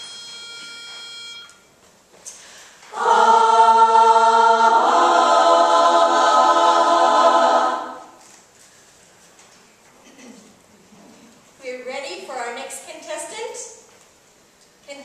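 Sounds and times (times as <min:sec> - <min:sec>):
women's a cappella chorus: 0:02.9 - 0:08.2.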